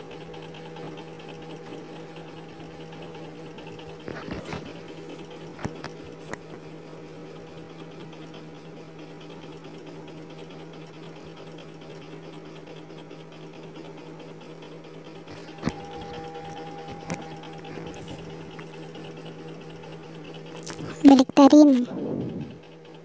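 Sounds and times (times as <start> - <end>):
low electrical hum: 15.3 - 22.8.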